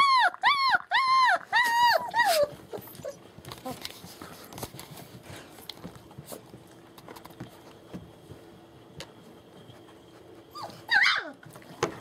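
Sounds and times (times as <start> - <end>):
puppy yelp: 0.0 - 3.2, 10.5 - 11.5
puppy paws tapping on floor: 1.7 - 9.9.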